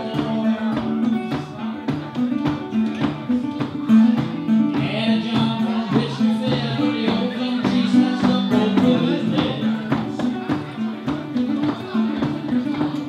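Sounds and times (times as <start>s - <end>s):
guitar strumming: 0.0s - 13.0s
man singing into a microphone: 0.0s - 13.0s.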